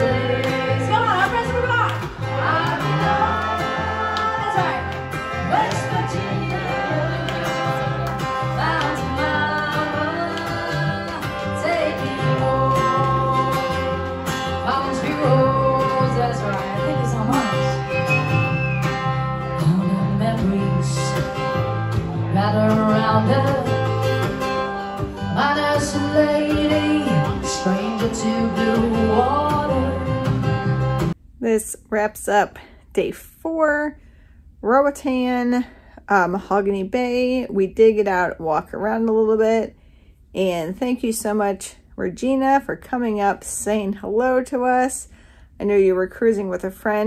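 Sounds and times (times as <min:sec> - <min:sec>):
strummed acoustic guitar: 0:00.0 - 0:31.2
person singing: 0:02.3 - 0:18.2.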